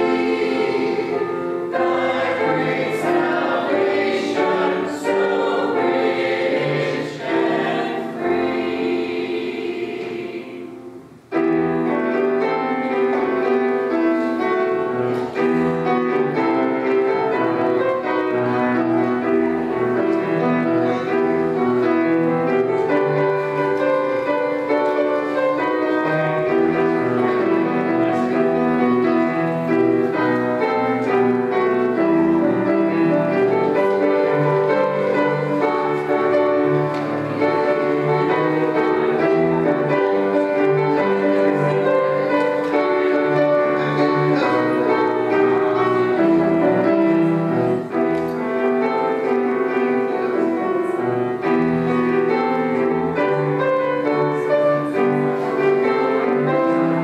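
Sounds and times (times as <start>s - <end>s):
piano chords: 0.0s - 57.0s.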